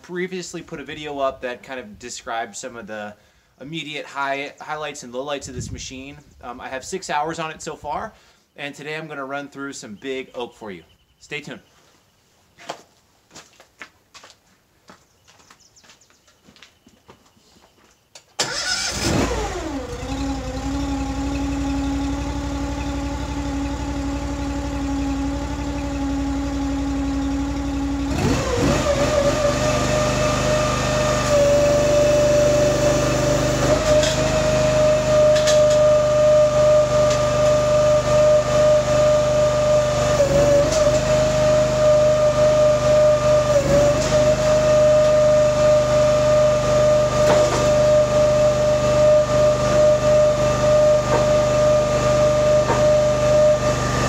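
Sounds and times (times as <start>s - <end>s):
engine starting and revving: 18.4s - 54.0s.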